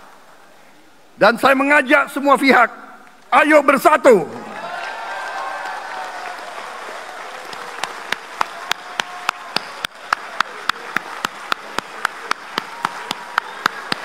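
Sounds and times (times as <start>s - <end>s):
audience clapping in unison: 4.5s - 14.0s.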